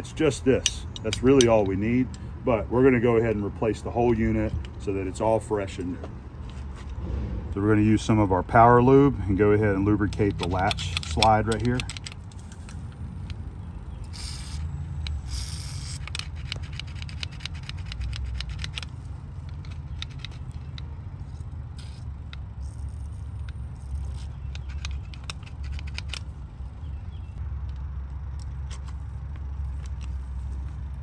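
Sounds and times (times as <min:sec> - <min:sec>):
low steady rumble: 0:00.0 - 0:31.0
metallic latch clicks and rattles: 0:00.6 - 0:02.2, 0:10.0 - 0:13.4, 0:23.4 - 0:26.3.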